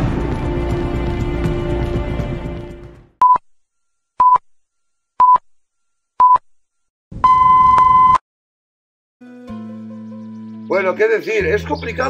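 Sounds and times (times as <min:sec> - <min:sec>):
long beep: 0:07.2 - 0:08.2.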